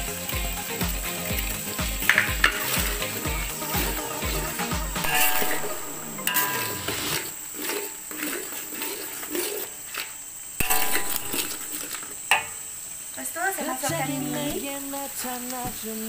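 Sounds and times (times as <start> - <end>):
oil sizzling: 0.0 - 16.0
metal spatula scraping a wok: 6.3 - 12.0.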